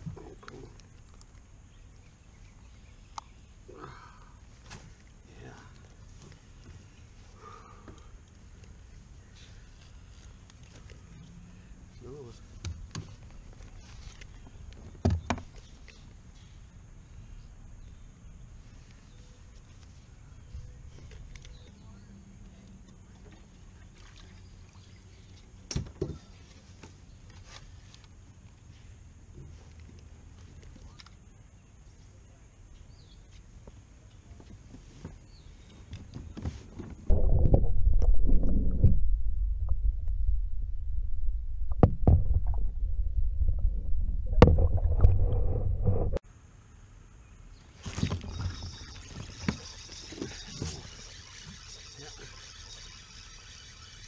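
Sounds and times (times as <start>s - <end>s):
faint rubbing and handling noise: 11.9s - 14.6s, 26.3s - 31.1s
muffled underwater rumble: 37.1s - 46.2s
faint steady high hiss: 46.2s - 52.3s.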